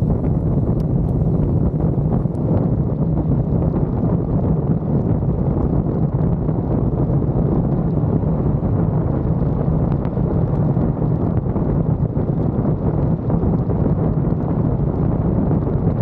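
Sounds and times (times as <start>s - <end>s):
vehicle driving rumble: 0.0s - 2.6s
wind rushing over microphone: 0.0s - 16.0s.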